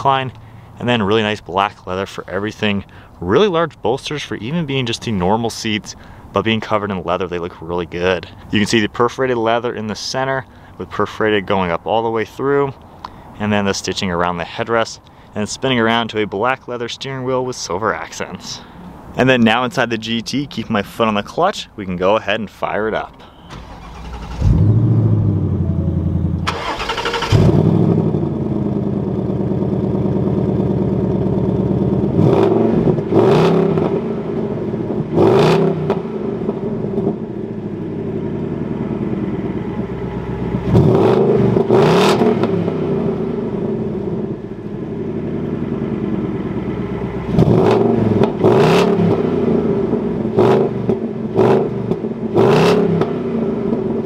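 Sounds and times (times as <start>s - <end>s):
car engine starting: 23.1s - 54.0s
car engine idling: 23.2s - 35.2s, 35.9s - 52.4s
car engine revving: 23.5s - 54.0s.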